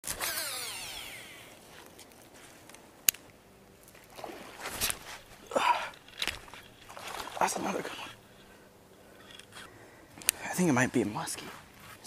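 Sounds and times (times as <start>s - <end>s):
fishing reel spool whine: 0.0s - 1.6s.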